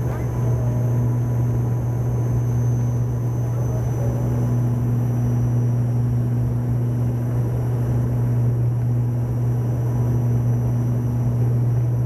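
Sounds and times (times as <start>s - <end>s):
thin high whine: 0.0s - 6.4s
faint hum: 0.0s - 12.0s
low propeller drone: 0.0s - 12.0s.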